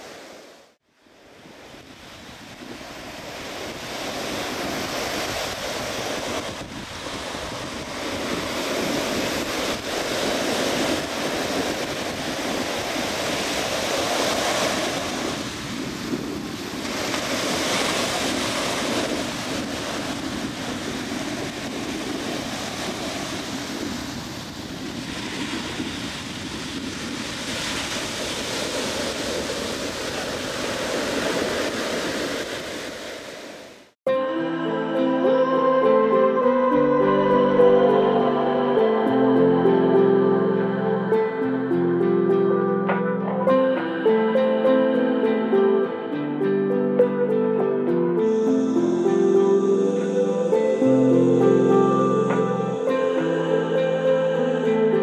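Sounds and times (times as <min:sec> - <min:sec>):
ocean surf breaking: 0:00.0 - 0:55.0
wind on microphone: 0:01.2 - 0:33.9.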